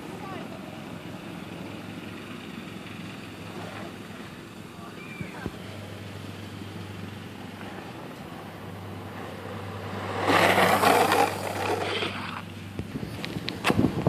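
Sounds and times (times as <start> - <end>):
skateboard wheels rolling on asphalt: 0.0 - 14.0.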